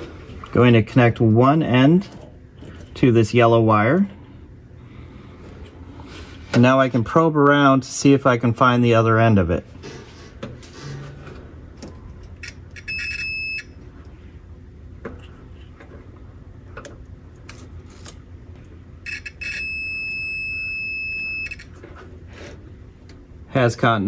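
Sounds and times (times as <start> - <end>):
multimeter continuity beep: 12.4 - 13.8, 19.0 - 21.7.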